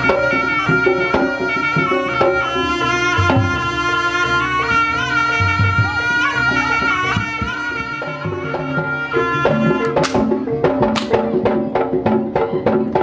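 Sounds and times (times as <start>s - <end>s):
drum and metal percussion strikes: 9.4s - 13.0s.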